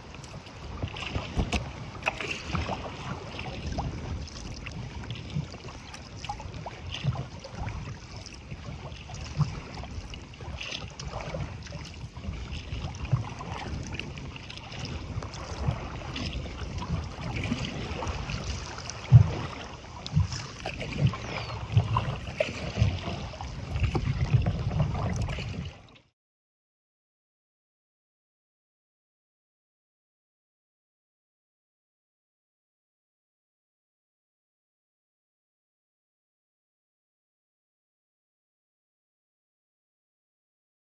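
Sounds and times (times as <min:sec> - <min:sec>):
wind buffeting microphone: 0:00.0 - 0:25.8
waves splashing: 0:00.0 - 0:25.9
water slapping hull: 0:00.0 - 0:26.1.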